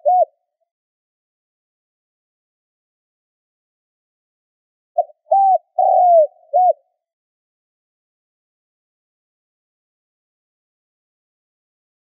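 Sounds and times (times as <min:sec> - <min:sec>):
dove cooing: 0:00.0 - 0:00.4, 0:05.0 - 0:06.9.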